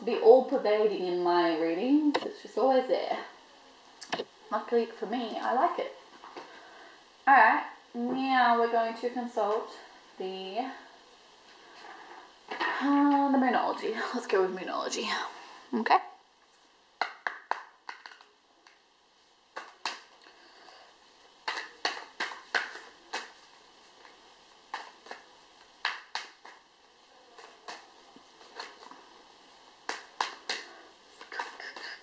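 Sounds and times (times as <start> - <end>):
cards being shuffled: 17.0 - 18.8, 19.5 - 20.2, 21.4 - 26.7, 27.3 - 32.0.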